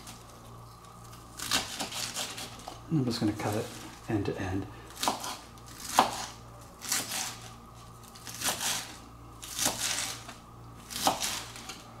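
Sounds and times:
knife slicing crisp lettuce: 1.0s - 2.8s, 4.9s - 11.8s.

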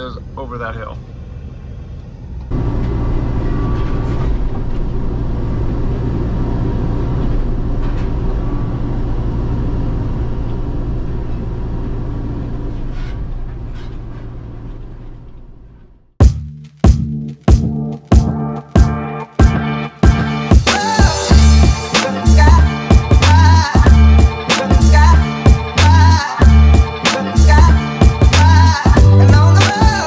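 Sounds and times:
heavy vehicle engine rumbling: 0.0s - 16.2s.

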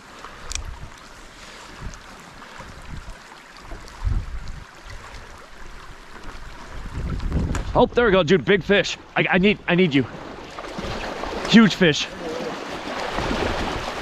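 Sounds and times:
wind on microphone: 1.7s - 3.2s, 3.8s - 8.2s, 13.1s - 14.0s
creek rushing over riffles: 10.8s - 14.0s.

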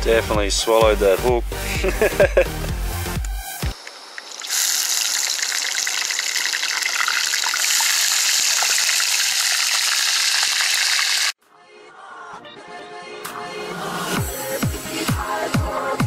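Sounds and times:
music: 0.0s - 3.8s, 11.4s - 16.0s
fish sizzling in hot oil: 3.7s - 11.4s.

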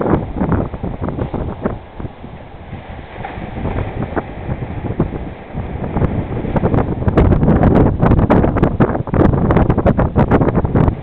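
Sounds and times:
ocean surf breaking: 0.0s - 11.0s
wind buffeting microphone: 0.0s - 11.0s.

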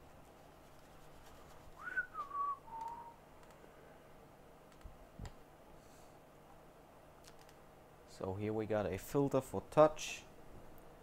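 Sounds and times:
person whistling: 1.8s - 3.2s
faint clicks: 2.8s - 3.6s.

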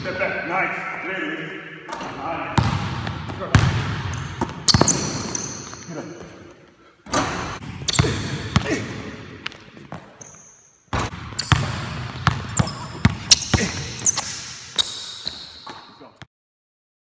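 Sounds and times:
basketball dribbling on wooden floor: 2.6s - 5.8s, 10.9s - 14.3s
sneaker squeaks: 3.4s - 6.4s, 7.1s - 16.3s.

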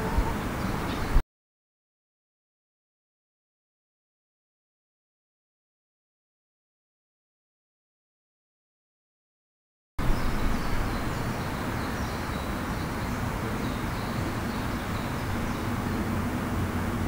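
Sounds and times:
distant traffic rumble: 0.0s - 1.2s, 10.0s - 17.0s
small birds chirping: 0.0s - 1.2s, 10.0s - 17.0s.

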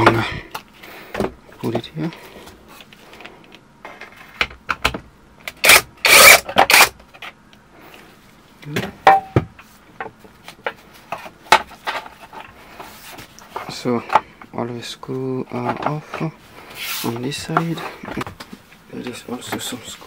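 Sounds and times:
cordless drill running: 5.6s - 6.9s.

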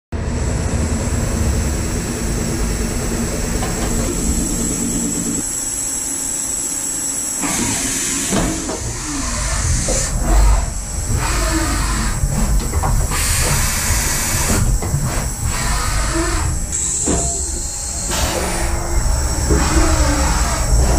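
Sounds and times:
axis drives whining: 0.2s - 20.9s
machine hum: 0.2s - 20.9s.

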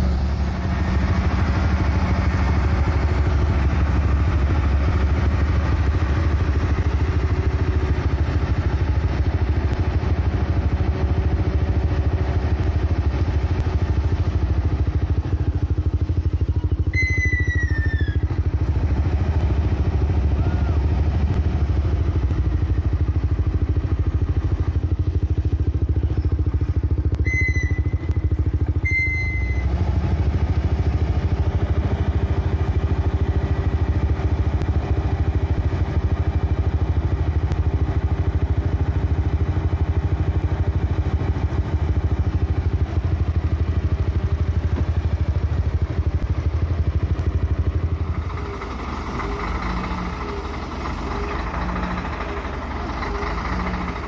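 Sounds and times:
truck diesel engine droning: 0.0s - 54.0s
short high-pitched tones: 16.8s - 18.2s, 27.2s - 29.8s.

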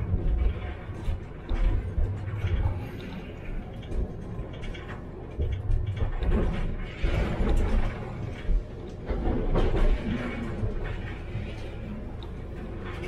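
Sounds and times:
scattered clicks: 0.0s - 13.0s
tram wheels rumbling on rails: 0.0s - 13.0s.

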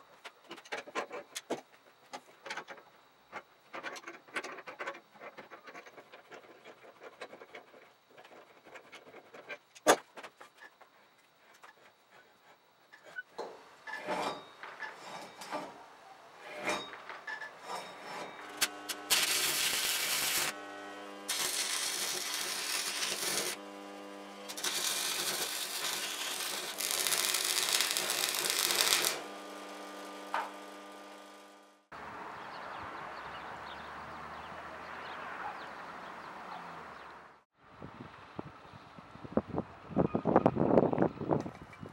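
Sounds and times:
arc welder crackling: 16.4s - 31.9s.

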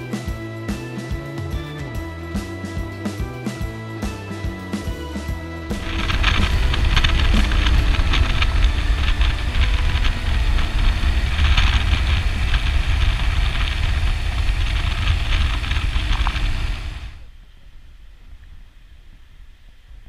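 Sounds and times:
motorcycle engine: 0.0s - 17.3s
low wind rumble: 5.4s - 20.0s
tyres on gravel: 5.7s - 17.2s.

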